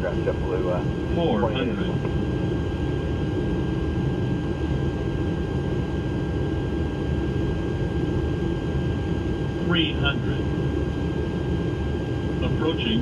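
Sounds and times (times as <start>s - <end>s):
thin high whine: 0.0s - 2.4s
airflow rush and engine rumble: 0.0s - 13.0s.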